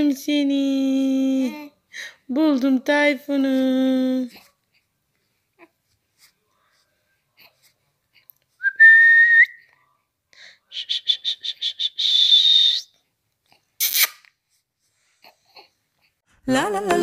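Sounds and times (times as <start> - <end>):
person whistling: 8.6 - 9.6, 10.7 - 12.9.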